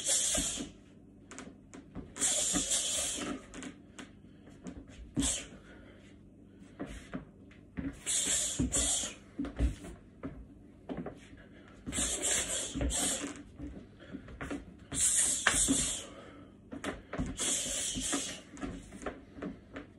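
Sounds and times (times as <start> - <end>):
sharp hissing breaths: 0.0 - 0.7, 2.2 - 3.4, 8.0 - 9.2, 11.9 - 13.3, 14.9 - 16.3, 17.4 - 18.5
boots scuffing and stamping on floor: 8.6 - 12.1.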